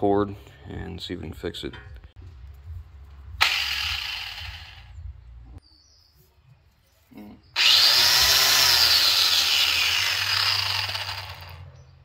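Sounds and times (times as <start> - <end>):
angle grinder motor whining: 3.4 - 4.9, 7.6 - 11.7.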